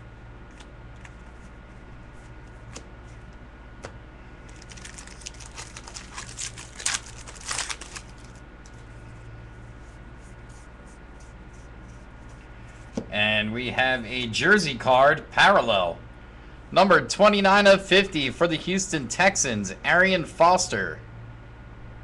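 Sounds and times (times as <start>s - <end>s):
steady low hum: 0.0s - 22.0s
card packaging rustling and crinkling: 4.5s - 8.8s.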